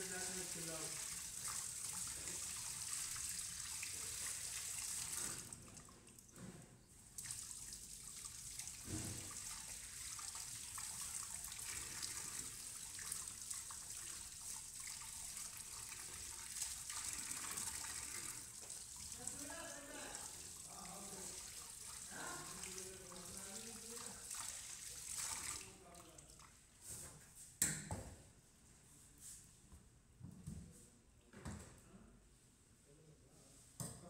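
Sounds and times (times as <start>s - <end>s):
tap water running into steel sink: 0.0s - 6.4s, 7.1s - 25.9s.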